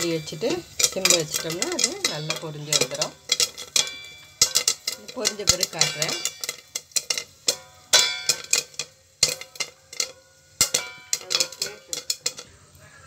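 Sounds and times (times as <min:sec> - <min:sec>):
kernels clinking on metal lid: 0:00.0 - 0:12.6
popcorn popping in a pot: 0:00.0 - 0:13.0.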